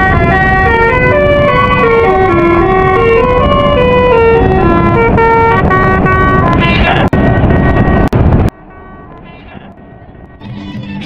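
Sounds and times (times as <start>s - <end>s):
musical vehicle horn playing tune: 0.0s - 6.6s, 10.2s - 11.0s.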